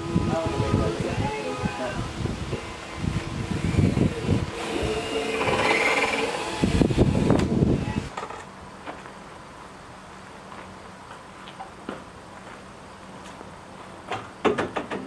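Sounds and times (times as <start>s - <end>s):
handheld drill drilling into wood: 3.4s - 8.1s.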